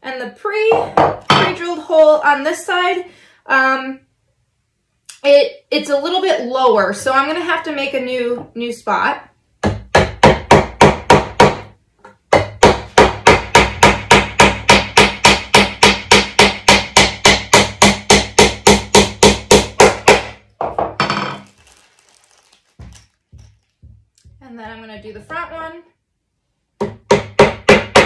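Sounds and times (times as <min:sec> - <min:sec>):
hammer hitting nail into wood: 0:09.6 - 0:11.7, 0:12.3 - 0:21.2, 0:26.8 - 0:28.0.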